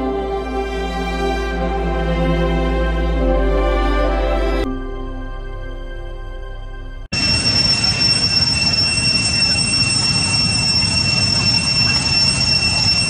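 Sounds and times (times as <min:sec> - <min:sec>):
background music: 0:00.0 - 0:07.1
high-pitched insect drone: 0:07.2 - 0:13.0.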